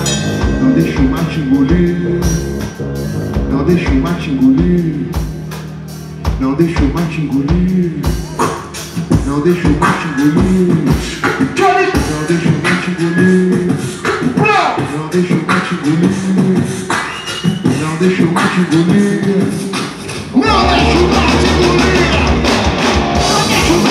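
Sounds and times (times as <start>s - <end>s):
hummed bass line: 0.0s - 16.8s, 20.4s - 23.9s
beatboxing kick-drum thumps: 6.3s - 20.6s.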